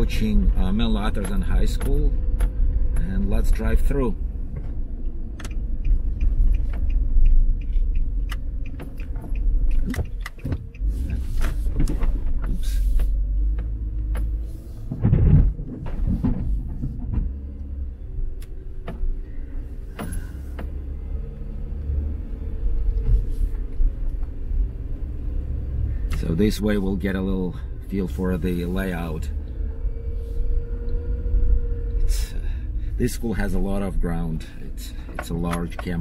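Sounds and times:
car engine and tyre rumble: 0:00.0 - 0:36.0
light clicks and knocks: 0:00.2 - 0:03.9, 0:04.5 - 0:17.7, 0:34.9 - 0:36.0.

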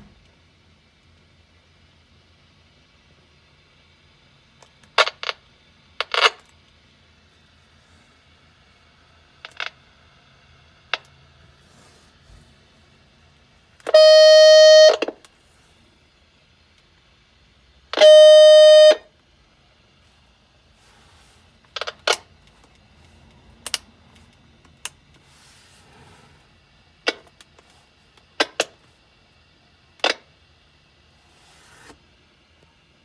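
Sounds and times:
buzzy walkie-talkie tone: 0:13.9 - 0:15.1, 0:18.0 - 0:19.1.

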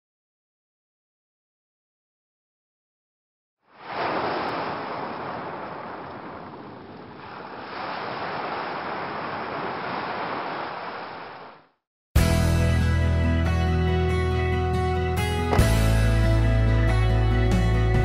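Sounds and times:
ocean waves washing in: 0:03.6 - 0:11.7.

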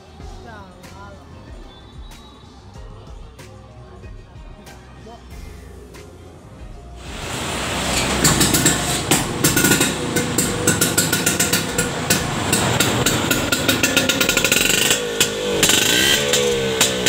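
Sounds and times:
two-stroke scooter engine popping: 0:07.0 - 0:17.0.

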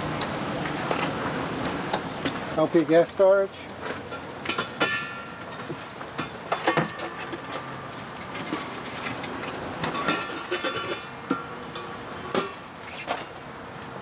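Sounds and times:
metal clanks and knocks: 0:03.8 - 0:13.5.

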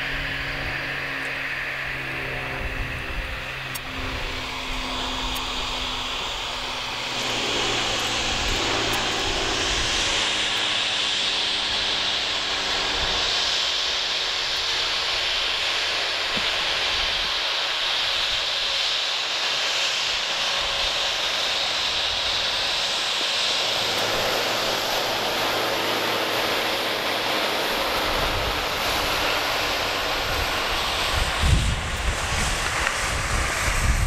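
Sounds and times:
aircraft engine droning: 0:00.0 - 0:34.0
wind buffeting microphone: 0:27.6 - 0:34.0.

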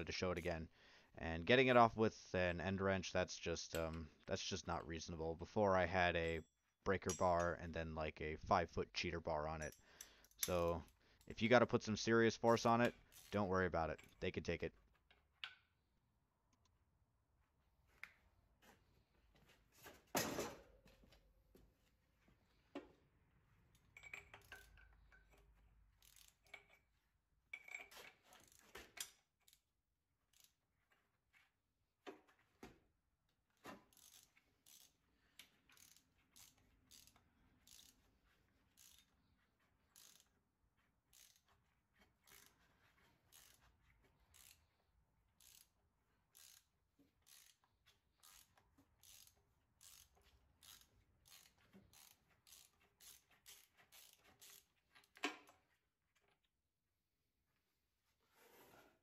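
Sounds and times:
ratcheting wrench clicking: 0:24.0 - 0:26.9, 0:27.6 - 0:29.7, 0:30.3 - 0:30.6, 0:33.9 - 0:39.2, 0:39.9 - 0:40.4, 0:41.1 - 0:41.6, 0:42.2 - 0:42.6, 0:43.3 - 0:43.7, 0:44.3 - 0:44.7, 0:45.4 - 0:45.7, 0:46.3 - 0:55.6.

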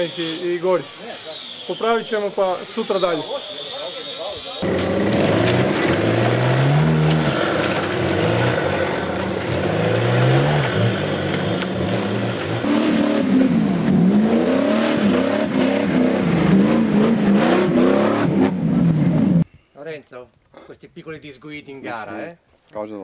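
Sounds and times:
off-road vehicle engine revving: 0:02.7 - 0:19.4.

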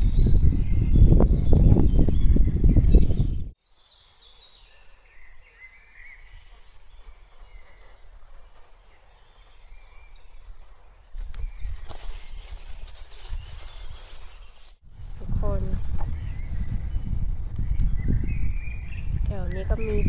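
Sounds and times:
wind buffeting microphone: 0:00.0 - 0:03.6, 0:11.1 - 0:14.2, 0:14.8 - 0:20.0
songbird chirps and trills: 0:00.0 - 0:20.0.

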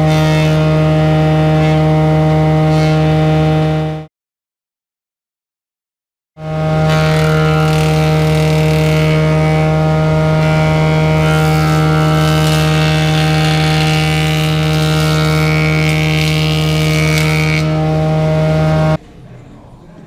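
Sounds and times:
woodworking machine humming: 0:00.0 - 0:04.1, 0:06.4 - 0:19.0.

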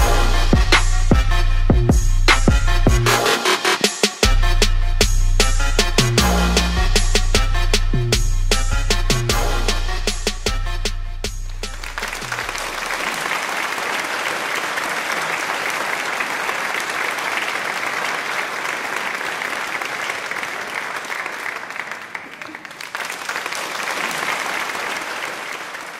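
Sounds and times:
crowd applause: 0:11.6 - 0:25.9.

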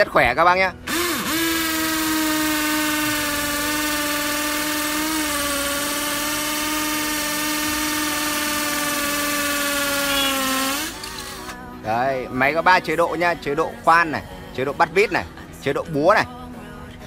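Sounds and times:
power drill boring into brick: 0:00.8 - 0:11.6.

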